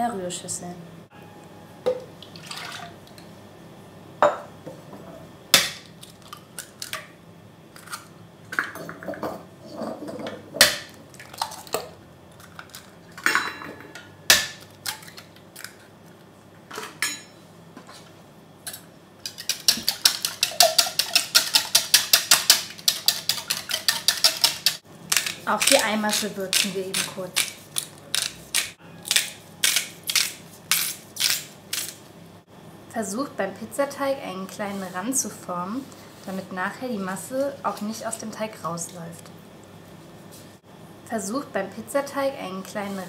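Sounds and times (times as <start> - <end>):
whisk beating in plastic bowl: 19.4 - 24.8.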